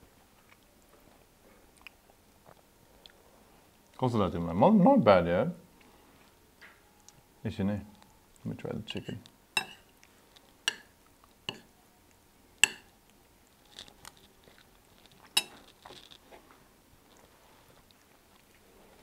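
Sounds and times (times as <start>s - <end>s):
chewing: 0.2s - 4.0s, 13.1s - 19.0s
cutlery clinking on plates: 8.9s - 9.9s, 10.7s - 10.9s, 11.5s - 11.7s, 12.6s - 12.9s, 15.3s - 15.7s.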